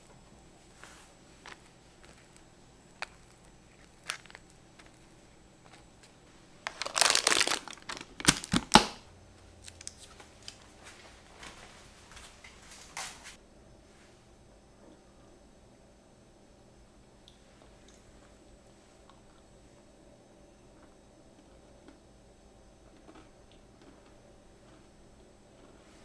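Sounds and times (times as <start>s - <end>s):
baking paper crinkling: 0.7s - 9.0s, 9.6s - 13.4s.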